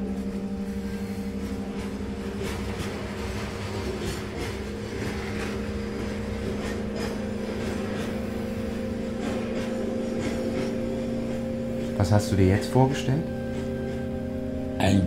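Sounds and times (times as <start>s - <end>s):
steady low drone: 0.0s - 15.0s
train rolling on rails: 0.0s - 15.0s.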